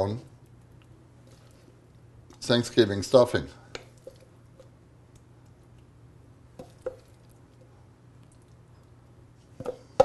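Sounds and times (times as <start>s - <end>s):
low steady hum: 0.0s - 10.0s
soft squishing of stuffing: 0.3s - 2.5s.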